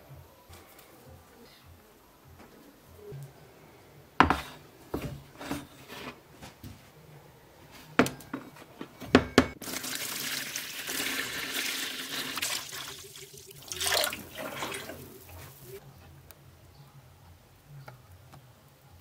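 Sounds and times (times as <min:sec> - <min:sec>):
water running and splashing: 0:09.6 - 0:15.8.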